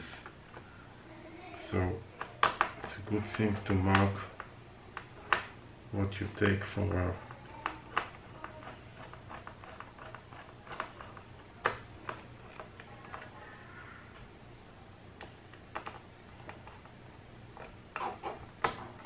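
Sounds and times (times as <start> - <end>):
screwdriver clicking on plastic: 7.4 - 13.4.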